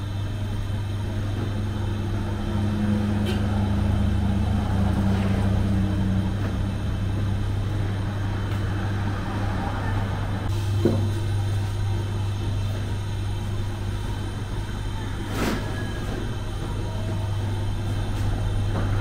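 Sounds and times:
steady low hum: 0.0s - 19.0s
vehicle passing: 2.6s - 10.5s.

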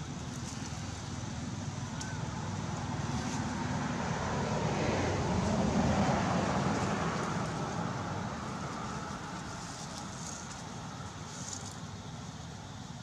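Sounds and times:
vehicle passing: 2.3s - 11.8s.

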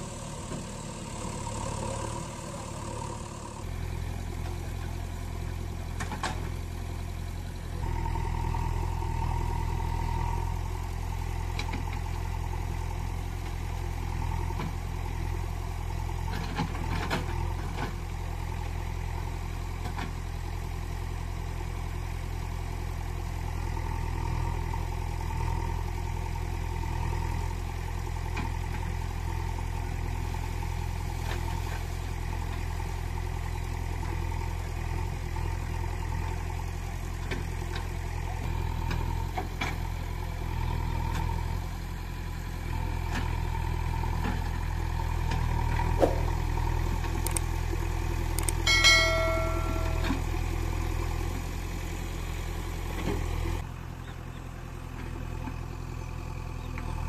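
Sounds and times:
engine idling: 0.0s - 57.0s
light clicks: 47.2s - 47.5s.

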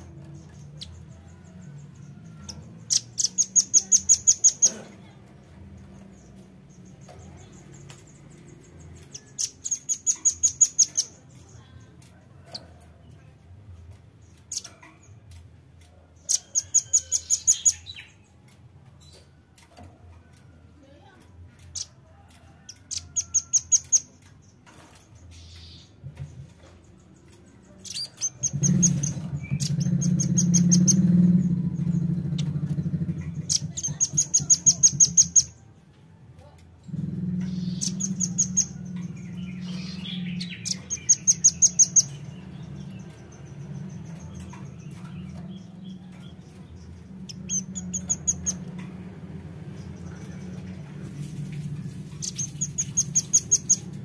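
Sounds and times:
steady low hum: 28.4s - 54.0s.

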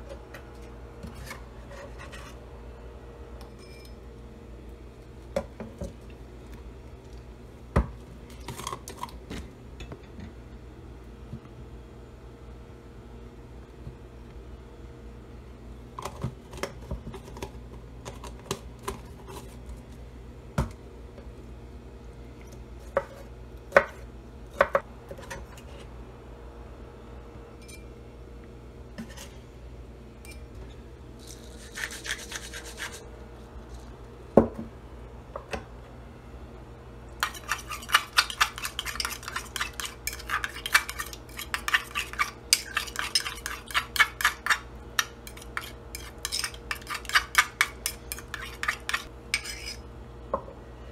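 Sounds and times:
knife scraping: 1.0s - 2.4s, 31.3s - 33.1s, 37.2s - 49.9s
utensil stirring clicking against bowl: 37.2s - 49.6s.

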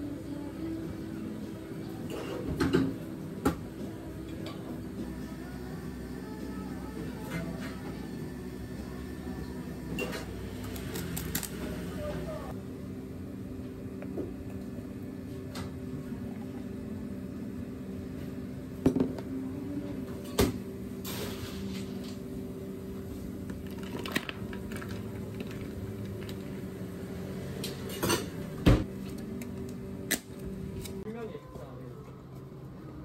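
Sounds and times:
steady low hum: 0.0s - 33.0s
plastic cups and utensils clattering: 23.5s - 26.5s.

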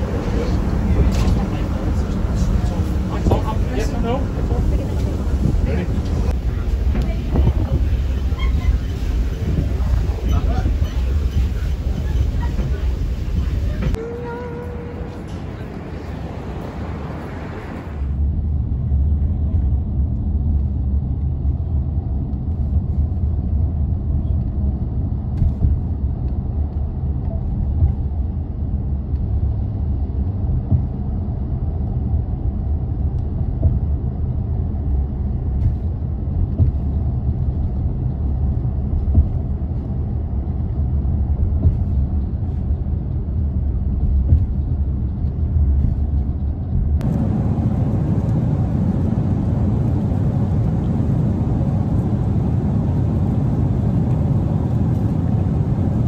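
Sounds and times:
airliner cabin low rumble: 0.0s - 56.0s.

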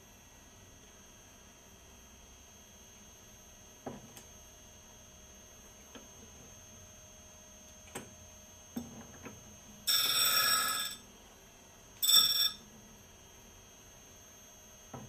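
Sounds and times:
high-pitched grinding wheel: 9.9s - 11.0s, 12.0s - 12.6s.

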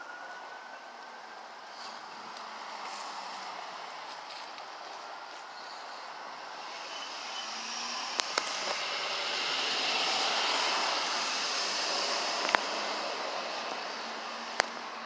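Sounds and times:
vehicle passing: 1.7s - 15.0s.

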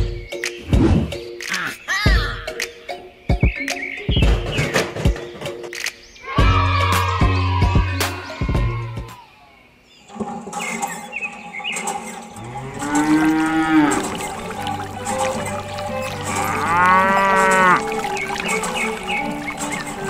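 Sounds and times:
background music: 0.0s - 9.3s, 10.1s - 20.0s
cow mooing: 12.4s - 15.0s, 15.6s - 18.2s.

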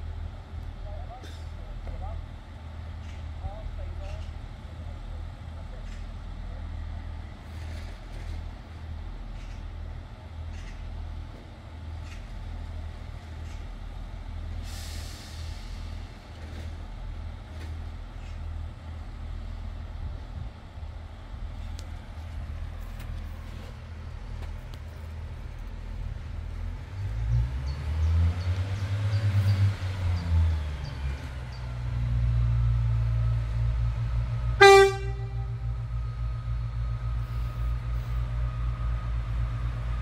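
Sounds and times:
diesel train engine rumbling: 0.0s - 40.0s
air brake hiss: 14.6s - 16.1s.

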